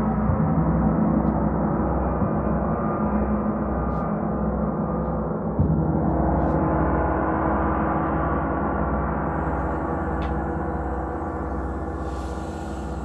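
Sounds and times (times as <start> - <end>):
large gongs ringing: 5.6 - 13.0.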